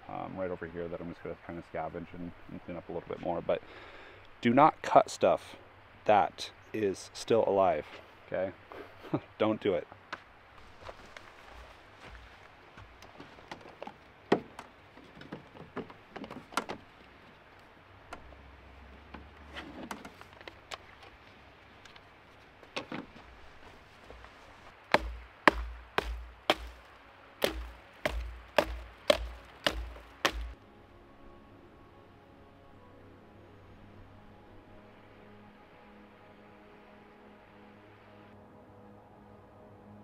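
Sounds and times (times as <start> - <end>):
sharp knocks with dull thuds: 24.9 - 26.8, 27.4 - 30.6.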